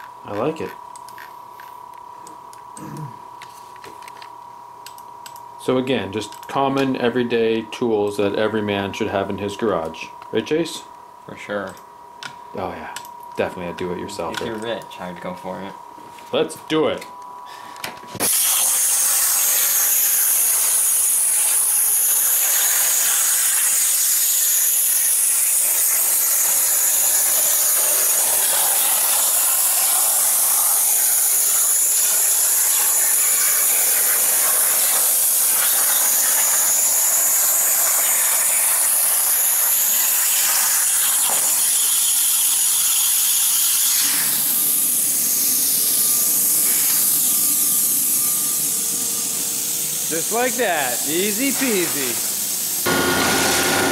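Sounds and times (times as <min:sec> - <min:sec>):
plasma cutter hissing: 0:18.2 - 0:53.9.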